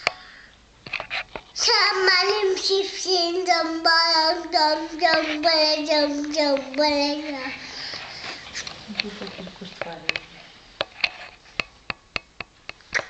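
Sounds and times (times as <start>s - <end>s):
young child singing: 1.6s - 7.8s.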